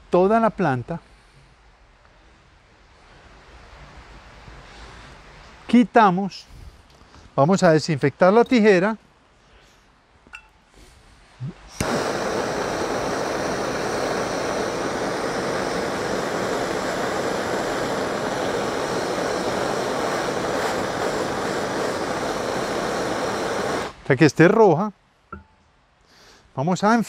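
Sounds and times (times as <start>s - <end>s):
gas torch hissing: 11.7s - 24.0s.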